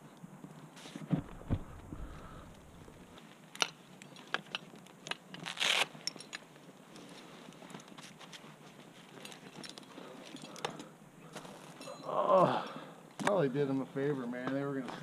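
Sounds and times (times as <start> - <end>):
climbing rope and gear clicks: 1.2 - 12.1.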